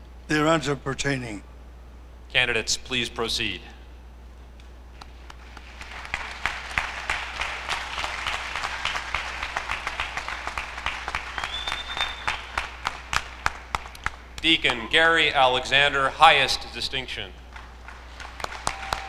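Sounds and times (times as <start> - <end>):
audience applauding: 5.2 - 14.8, 17.5 - 19.0.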